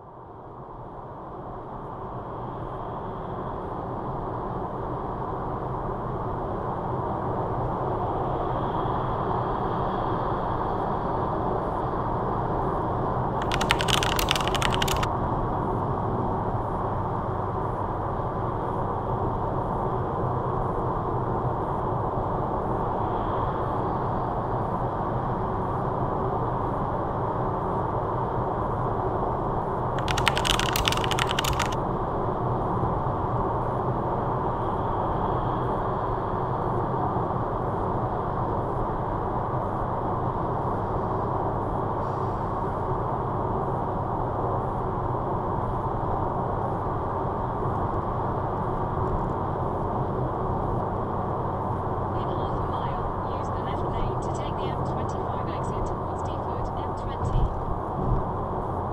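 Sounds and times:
car road and engine noise: 0.0 - 58.9
rattling clicks: 13.4 - 15.1, 30.0 - 31.8.

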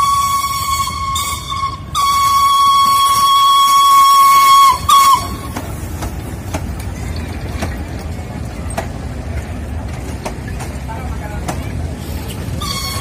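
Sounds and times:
steam whistle blast: 0.0 - 5.5, 12.6 - 13.0
train coaches rumbling past: 0.0 - 13.0
wheels clicking over rail joints: 0.0 - 13.0.

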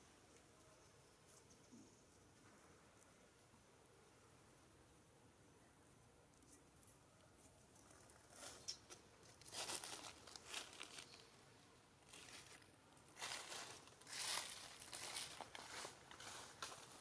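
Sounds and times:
rustling and crinkling: 6.3 - 17.0.

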